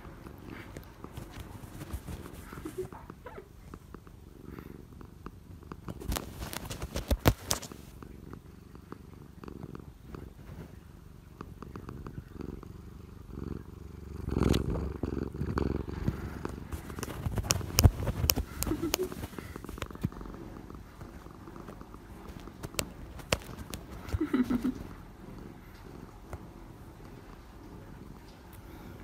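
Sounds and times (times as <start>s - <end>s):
cat purring: 0.0s - 29.0s
paws bumping phone: 16.0s - 20.2s, 21.6s - 24.8s.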